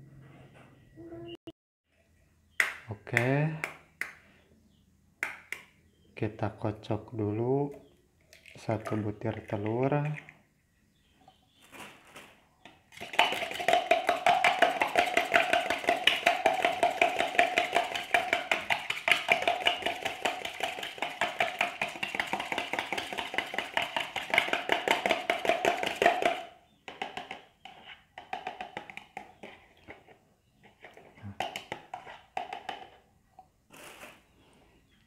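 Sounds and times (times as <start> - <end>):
fork whisking egg in plastic cup: 12.9 - 26.4.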